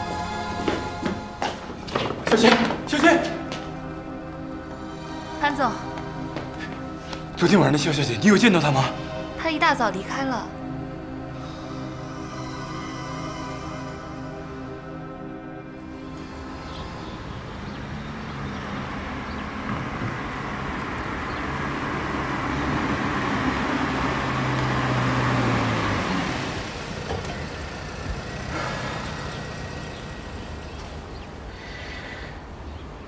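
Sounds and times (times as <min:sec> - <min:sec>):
car engine and tyre noise: 0:15.6 - 0:33.0.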